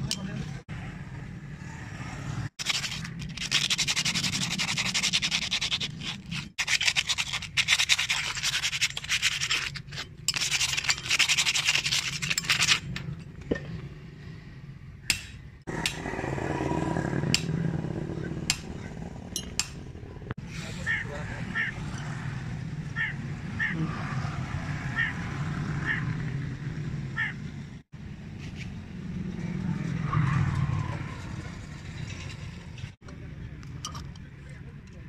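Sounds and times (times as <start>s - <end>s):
scraping rust off steel blade: 2.6s - 13.3s.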